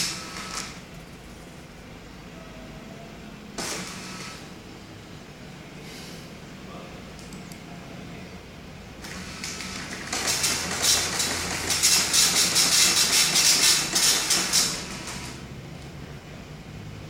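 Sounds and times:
dot-matrix printer printing: 0.0 - 0.8, 3.6 - 4.6, 9.0 - 15.4.

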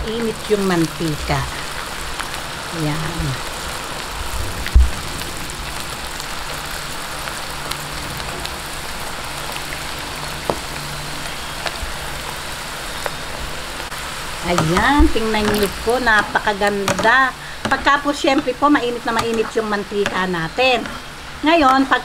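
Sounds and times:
food deep-frying in hot oil: 0.0 - 22.0
low thump: 4.4 - 5.2.

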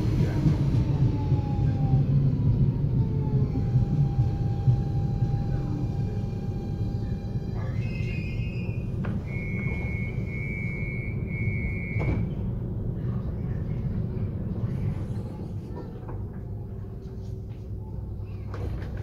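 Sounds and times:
electric train inverter whine: 0.0 - 12.7
low train rumble: 0.0 - 19.0.

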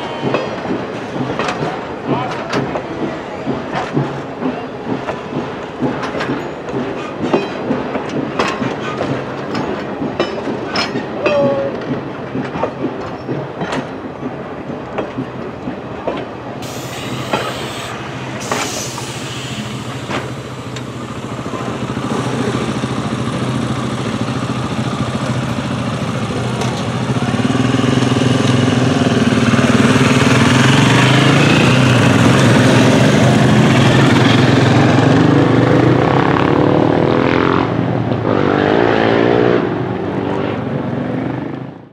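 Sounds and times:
train wheels clacking over rail joints: 0.0 - 36.2
train wheel squeal: 16.6 - 20.3
motorcycles idling: 16.8 - 34.6.

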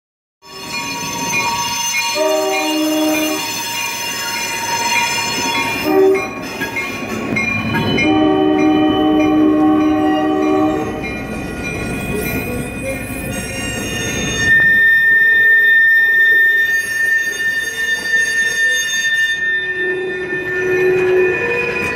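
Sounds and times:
high steady squeal of train cars: 0.4 - 21.9
locomotive horn blasts: 2.0 - 3.5, 5.4 - 6.4, 8.0 - 11.0.

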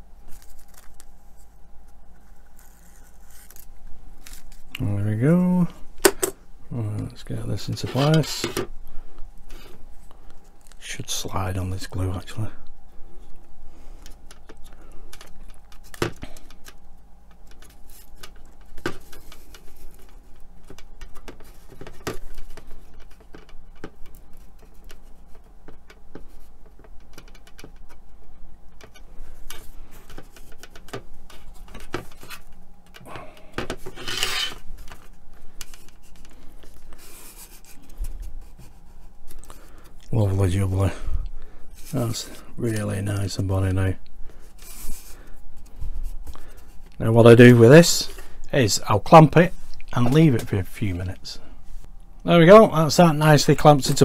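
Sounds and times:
hands rubbing plastic: 14.0 - 33.1, 33.7 - 40.3
scraping: 33.7 - 39.8.

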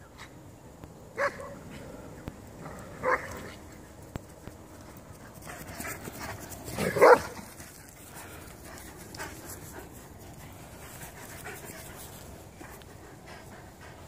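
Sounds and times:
dog panting: 4.8 - 14.0.

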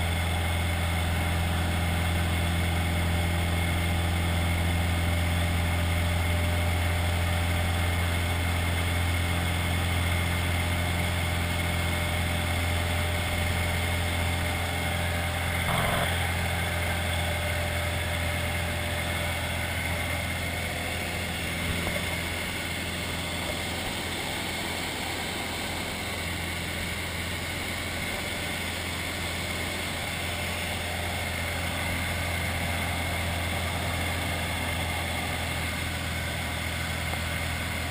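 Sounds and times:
light aircraft engine droning: 0.0 - 37.9
deep hum: 15.6 - 16.4.

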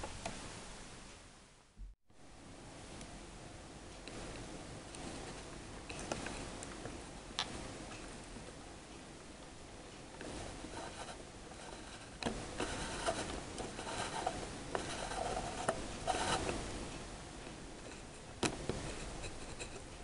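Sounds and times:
gears clicking and rubbing: 10.7 - 16.6.

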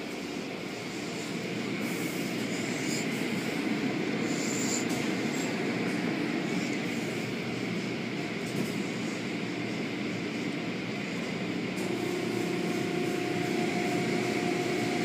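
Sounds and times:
car wash machinery rumbling: 4.9 - 15.0.

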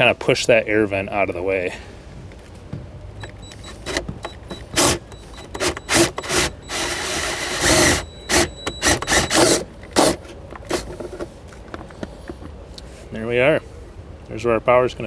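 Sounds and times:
drill cutting through plastic: 4.6 - 10.2.

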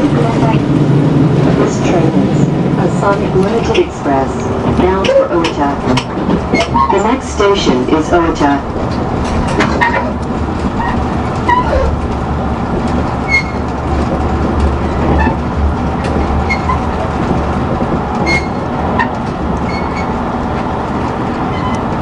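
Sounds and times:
train rumbling: 0.0 - 22.0
faint rattles and clicks: 4.6 - 7.1.

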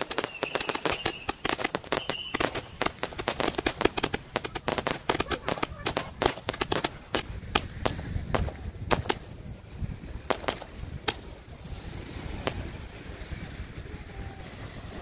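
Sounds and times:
firework sharp pops: 0.0 - 11.6, 12.3 - 12.8
wind rumble on microphone: 0.0 - 15.0.

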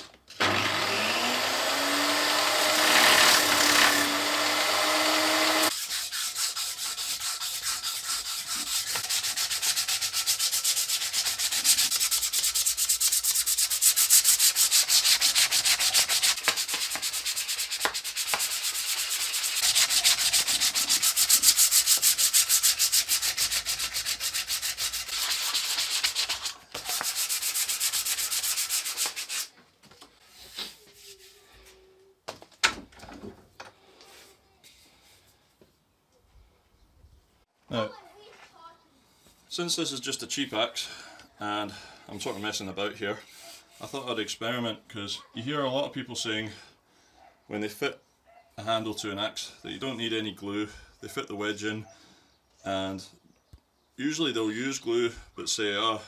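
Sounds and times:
power tool motor running: 0.4 - 5.7
sandpaper rubbing on wood: 2.8 - 29.5.

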